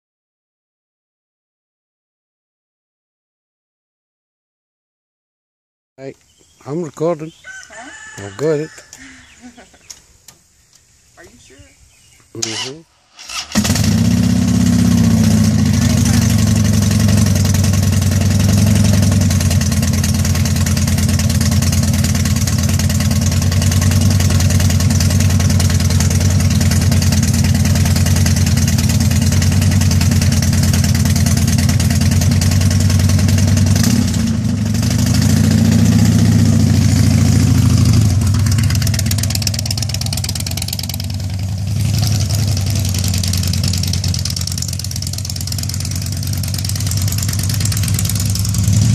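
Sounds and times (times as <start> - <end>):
motorcycle engine idling: 13.4 - 48.9.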